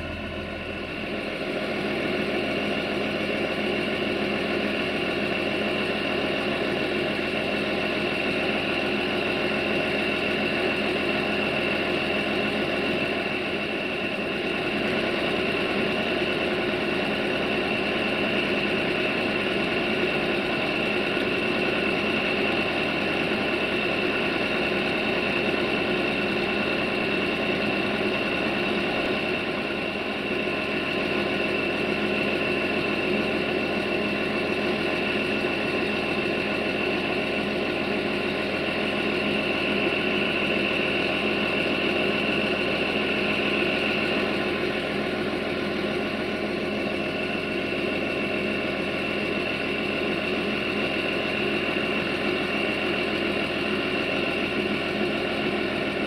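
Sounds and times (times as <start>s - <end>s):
constant high whine: 0.0s - 56.0s
diesel engine idling: 0.0s - 56.0s.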